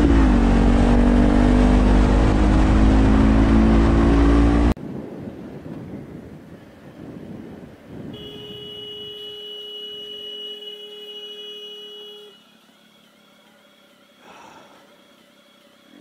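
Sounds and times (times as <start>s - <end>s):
wind noise: 4.8s - 8.7s
horn blast: 8.1s - 12.5s.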